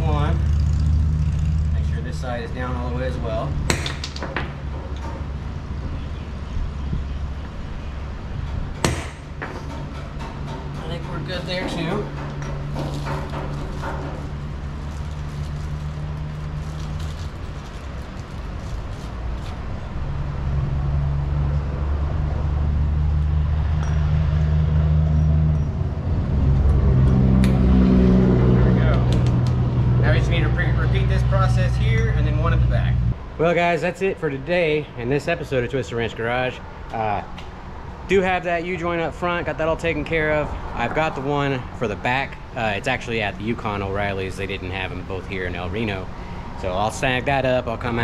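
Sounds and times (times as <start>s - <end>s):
vehicle engine humming: 0.0s - 35.2s.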